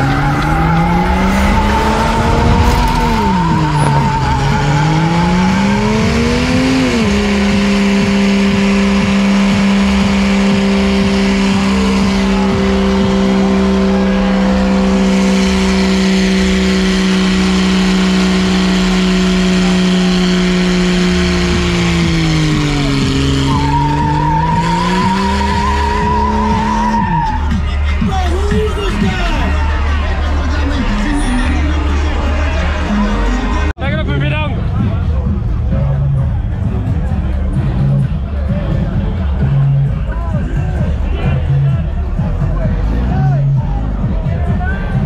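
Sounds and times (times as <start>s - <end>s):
tire squeal: 0.0s - 7.5s, 9.5s - 33.7s
car engine revving high: 0.0s - 33.8s.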